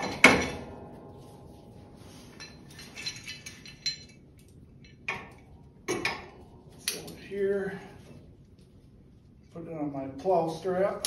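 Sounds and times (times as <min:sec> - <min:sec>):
metal clank: 0:00.0 - 0:04.2.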